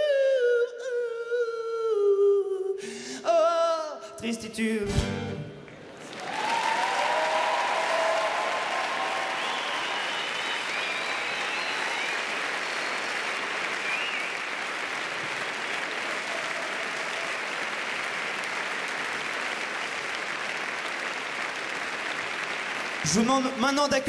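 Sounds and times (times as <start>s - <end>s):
audience applauding: 5.7s - 24.0s.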